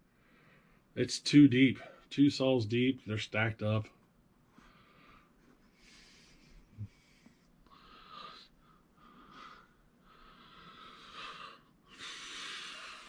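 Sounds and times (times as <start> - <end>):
person breathing softly: 0.0 - 0.9, 4.5 - 13.0.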